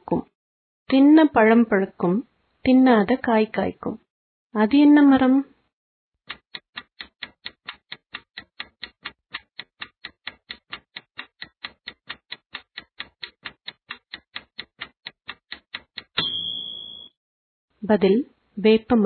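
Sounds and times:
clock-like ticking: 6.3s - 16.7s.

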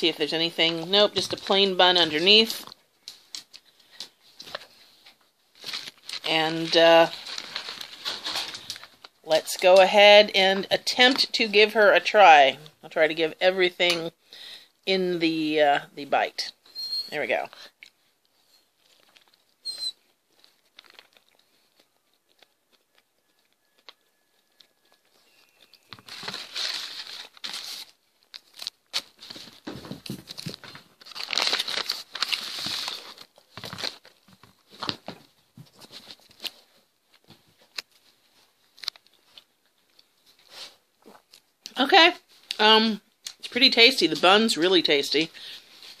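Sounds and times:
paper wrapper crinkling: 0.4s - 9.8s, 18.3s - 41.5s.

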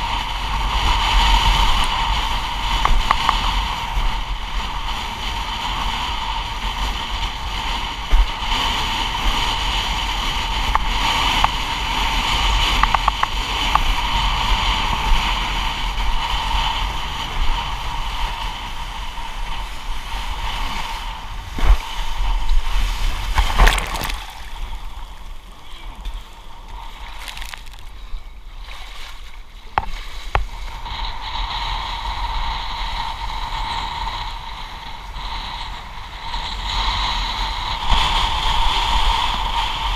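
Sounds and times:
wind on microphone: 0.0s - 39.9s
water rushing past board: 20.5s - 30.8s
knocks and splashes: 23.3s - 25.0s, 27.0s - 27.9s.

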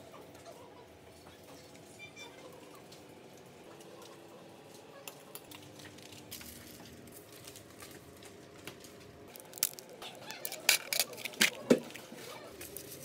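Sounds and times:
foil tin crinkling clicks: 5.4s - 13.0s.

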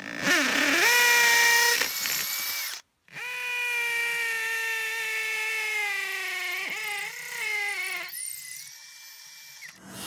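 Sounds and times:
hammer drill boring into concrete: 0.0s - 10.0s.

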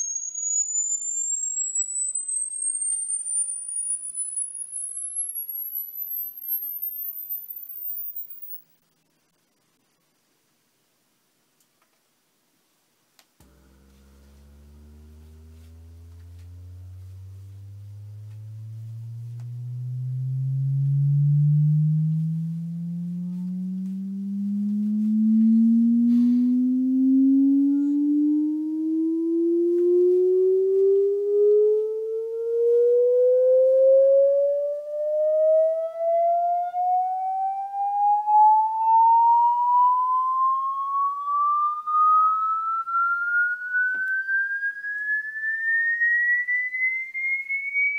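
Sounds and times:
sine tone sweeping upward: 0.0s - 9.6s, 13.4s - 47.9s.

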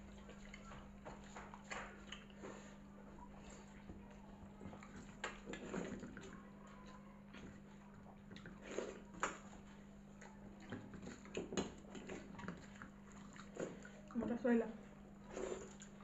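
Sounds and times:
wet squelches of mixing rice: 0.0s - 16.0s.

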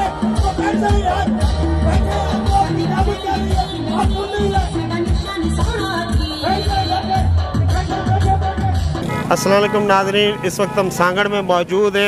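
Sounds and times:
loud music with thumping beat: 0.0s - 9.0s.

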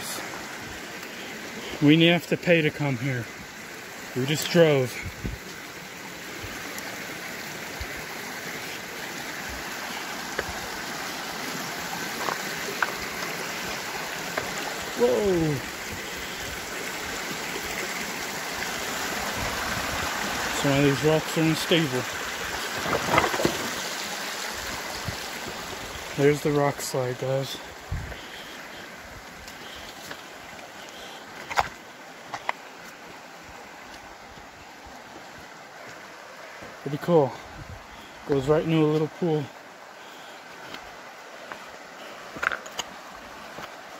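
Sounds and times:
creek water rushing over rocks: 0.0s - 43.9s
rocks clacking underfoot: 12.0s - 13.4s, 22.7s - 23.8s, 31.4s - 32.6s, 42.3s - 43.8s.

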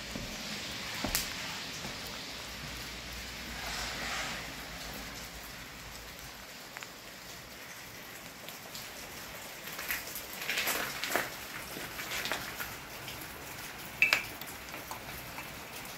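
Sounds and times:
rain pattering on wet ground: 0.0s - 15.9s
crackles and clicks: 3.5s - 15.9s
drips ticking: 11.3s - 15.9s.

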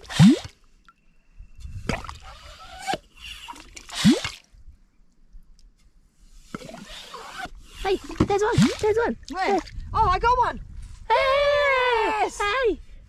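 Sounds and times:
pump sucking wet mud: 0.0s - 0.5s.

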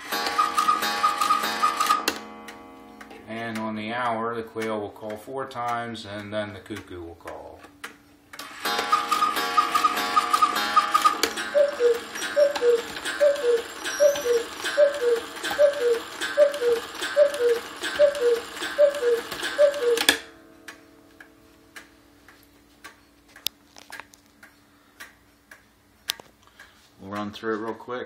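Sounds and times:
cuckoo clock two-note call: 0.0s - 2.8s, 8.7s - 21.4s
quail clock call: 0.1s - 2.1s, 8.7s - 20.2s
faint clock ticking: 0.1s - 23.6s, 24.4s - 27.8s.

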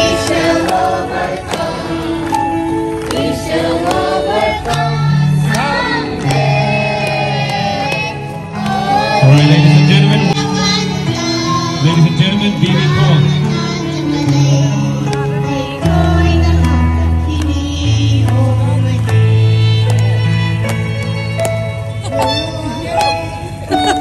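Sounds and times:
choir singing: 0.0s - 11.9s
instrumental backing: 0.0s - 24.0s
held bass notes: 4.3s - 24.0s.

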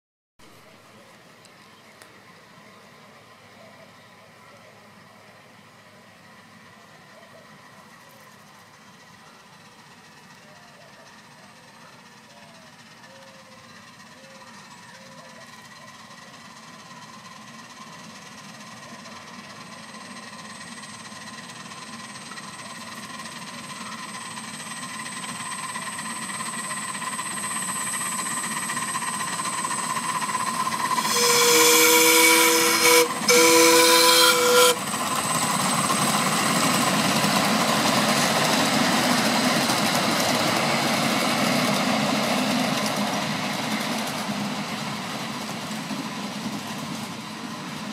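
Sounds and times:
train rushing past on track: 2.2s - 47.9s
steam locomotive whistle blasts: 26.5s - 36.8s.

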